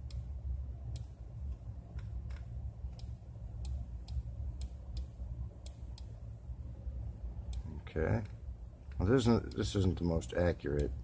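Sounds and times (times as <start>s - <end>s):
steady low hum: 0.0s - 11.0s
computer mouse clicking: 0.9s - 6.2s.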